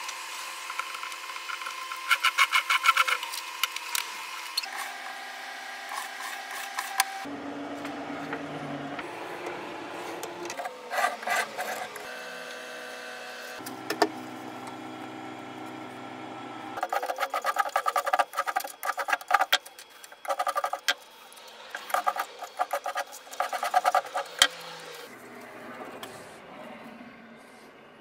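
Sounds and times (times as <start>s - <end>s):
hand sanding wood: 1.6s - 3.2s, 5.9s - 7.2s, 10.9s - 12.0s, 16.8s - 25.1s.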